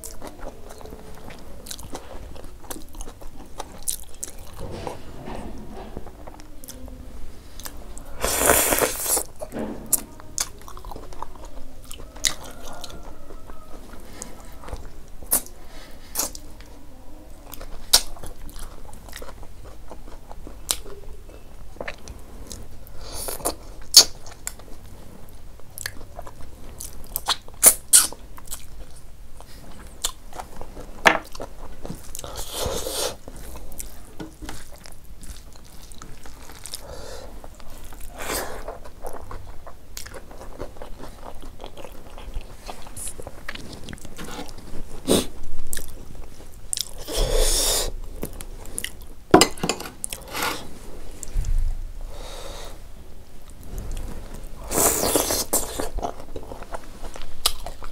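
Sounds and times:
wet chewing with mouth clicks: 0:00.0 - 0:04.6, 0:25.6 - 0:49.1, 0:54.7 - 0:57.9.

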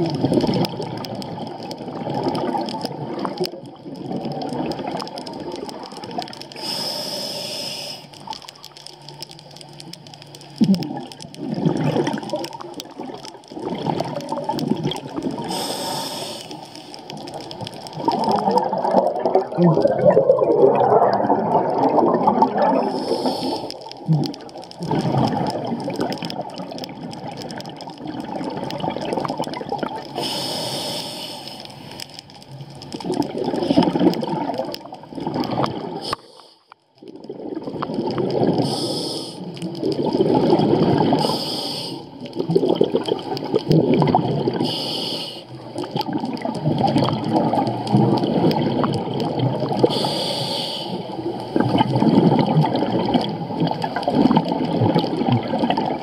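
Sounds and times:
bubbling exhale: 0:00.0 - 0:08.4, 0:10.6 - 0:32.0, 0:33.0 - 0:36.6, 0:37.2 - 0:56.0
regulator hissing inhale: 0:06.6 - 0:08.3, 0:15.4 - 0:17.0, 0:22.8 - 0:23.8, 0:30.1 - 0:32.0, 0:36.0 - 0:36.8, 0:38.6 - 0:39.5, 0:41.2 - 0:42.2, 0:44.6 - 0:45.6, 0:49.9 - 0:51.2.

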